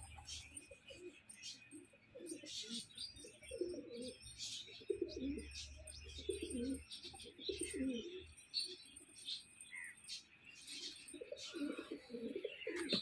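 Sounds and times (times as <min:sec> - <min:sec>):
bird chirps: 0:00.0 - 0:13.0
pigeons cooing: 0:00.0 - 0:13.0.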